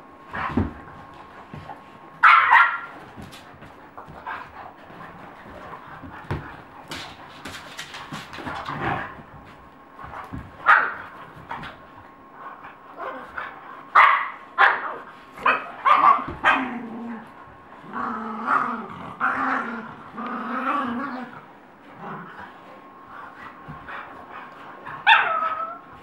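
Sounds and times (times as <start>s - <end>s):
dogs barking and yelping: 2.2s - 2.9s, 25.0s - 25.9s
dogs growling: 15.4s - 25.8s.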